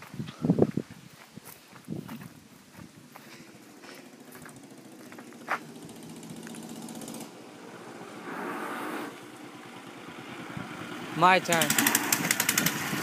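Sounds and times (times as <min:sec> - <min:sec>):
moped engine approaching: 0:02.9 - 0:13.0.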